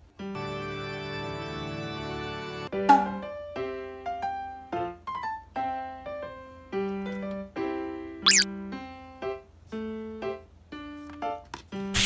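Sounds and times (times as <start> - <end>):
light piano music: 0.1 - 11.8
short high warbling sound: 8.3 - 8.5.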